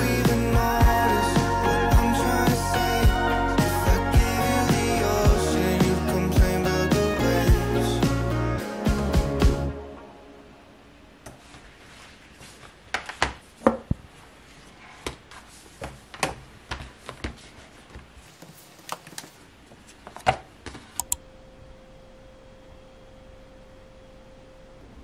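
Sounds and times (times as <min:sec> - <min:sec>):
faint steady hum: 0:00.0 - 0:25.0
tablet being handled: 0:15.0 - 0:21.0
keyboard keys clicking: 0:21.0 - 0:21.2.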